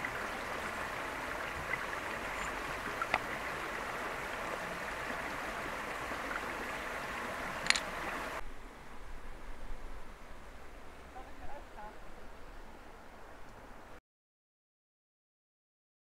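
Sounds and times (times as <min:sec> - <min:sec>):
river water rushing over rocks: 0:00.0 - 0:08.4
dull hiss: 0:00.0 - 0:13.8
short clicks: 0:07.6 - 0:07.9.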